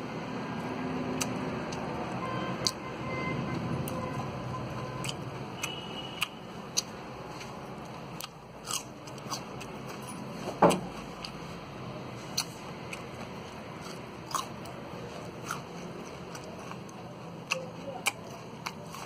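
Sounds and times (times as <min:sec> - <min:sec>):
person biting and chewing root: 0:01.0 - 0:02.8, 0:03.5 - 0:11.6, 0:12.2 - 0:19.0.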